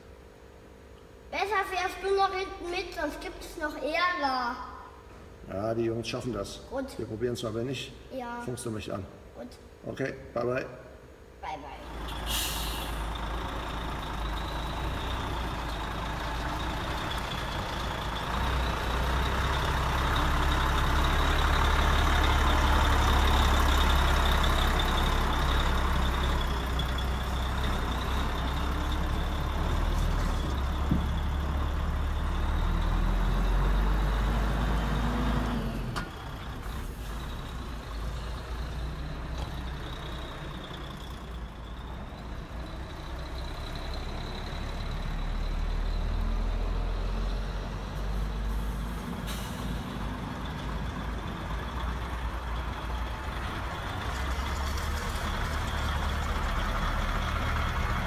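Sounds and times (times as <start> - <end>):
model truck engine: 11.9 - 58.0.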